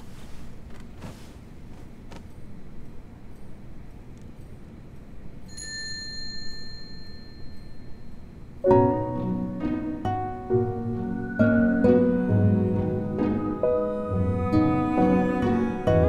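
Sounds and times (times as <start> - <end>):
quiet hiss: 0.0 - 16.0
faint high steady tone: 5.4 - 8.7
plucked harp-like music: 8.7 - 16.0.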